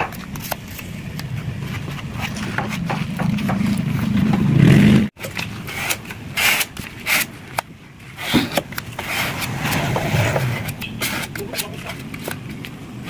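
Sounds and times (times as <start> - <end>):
sandpaper scraping metal: 5.5 - 7.5, 8.1 - 12.3.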